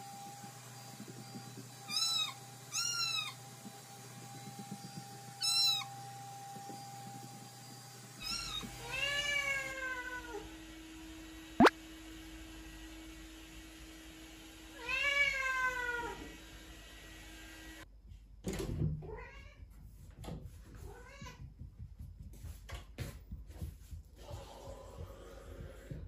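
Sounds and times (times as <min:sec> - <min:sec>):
cat meowing: 0:01.9 - 0:03.4, 0:05.4 - 0:05.9.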